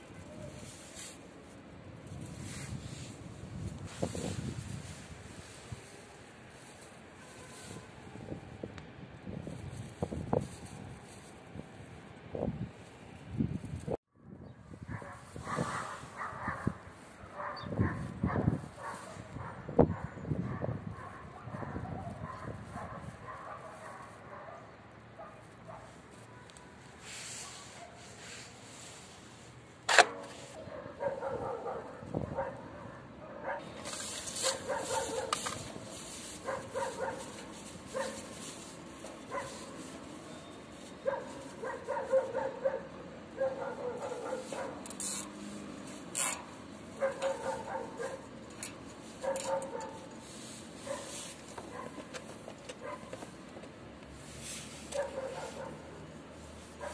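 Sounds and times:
dog barking: 0:14.9 - 0:26.5, 0:30.6 - 0:33.7, 0:34.4 - 0:35.4, 0:36.4 - 0:38.2, 0:39.3 - 0:39.7, 0:41.0 - 0:44.8, 0:47.0 - 0:48.3, 0:49.2 - 0:50.1, 0:50.8 - 0:52.0, 0:52.8 - 0:53.1, 0:54.9 - 0:55.9
scraping sounds: 0:25.4 - 0:31.3, 0:33.5 - 0:42.5, 0:43.6 - 0:56.9.

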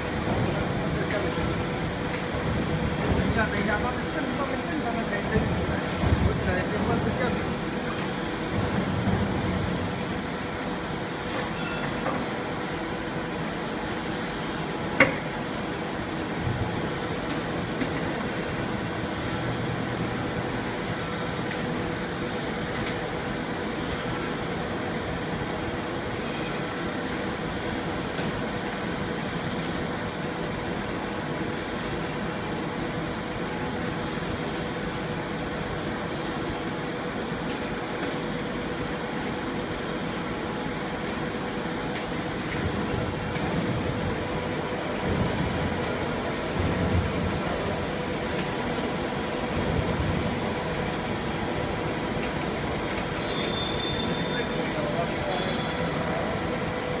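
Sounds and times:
machine running with high whine: 0:00.0 - 0:57.0.

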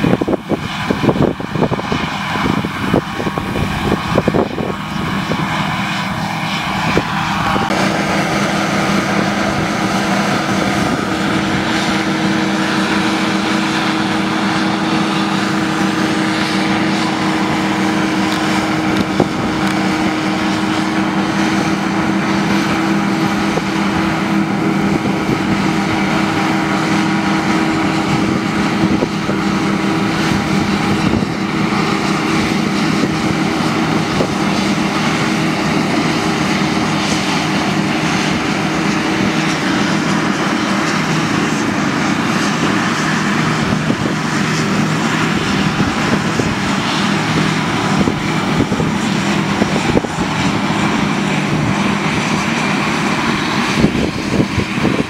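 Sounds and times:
combine harvester engine hum: 0:00.0 - 0:55.0
threshing rushing noise: 0:00.0 - 0:55.0.

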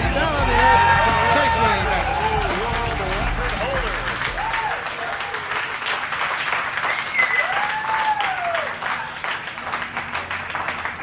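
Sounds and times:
crowd cheering: 0:00.0 - 0:11.0
crowd clapping: 0:00.0 - 0:11.0.

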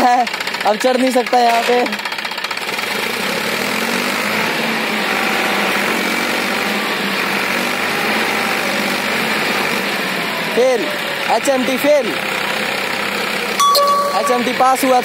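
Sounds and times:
tractor diesel engine running: 0:04.8 - 0:13.6.

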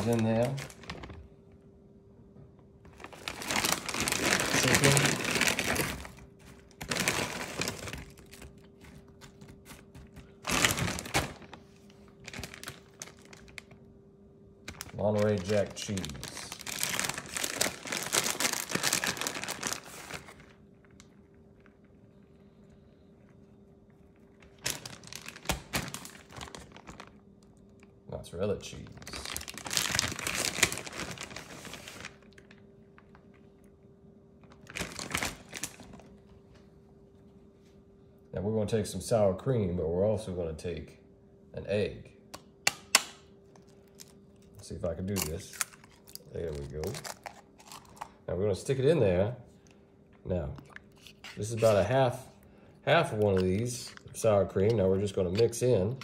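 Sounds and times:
plastic bag rustling: 0:00.0 - 0:01.3, 0:02.9 - 0:13.8, 0:14.6 - 0:21.8, 0:24.2 - 0:27.2, 0:28.7 - 0:33.4, 0:34.4 - 0:36.2, 0:50.6 - 0:56.0.

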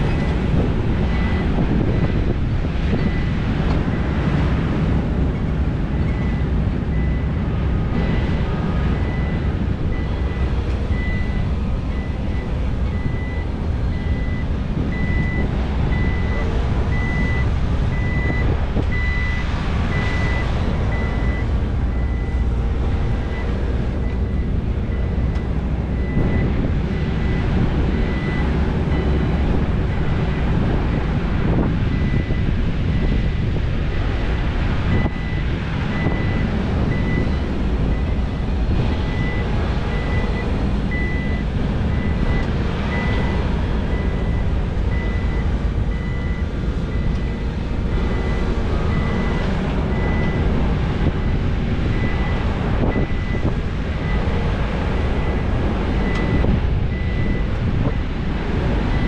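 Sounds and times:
reversing alarm beeping: 0:00.0 - 0:02.2, 0:02.9 - 0:04.1, 0:05.3 - 0:07.4, 0:08.0 - 0:29.2, 0:31.5 - 0:33.4, 0:34.4 - 0:50.4, 0:51.0 - 0:54.3, 0:55.0 - 0:58.0
diesel machinery rumble: 0:00.0 - 0:59.0.

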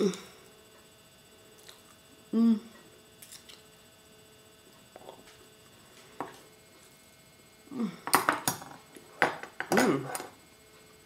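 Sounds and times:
low vocal sound: 0:02.3 - 0:02.8, 0:07.7 - 0:08.0.

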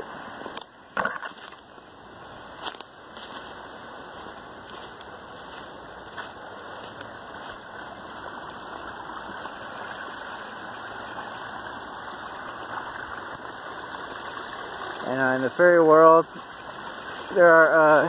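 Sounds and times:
creek running over a drop: 0:00.0 - 0:18.0.

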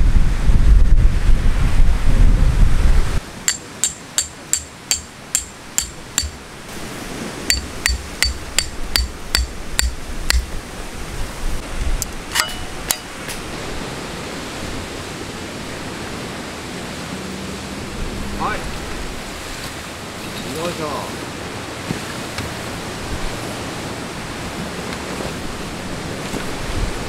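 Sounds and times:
hammer striking tent pegs: 0:03.4 - 0:06.4, 0:07.5 - 0:10.5, 0:12.3 - 0:13.4.

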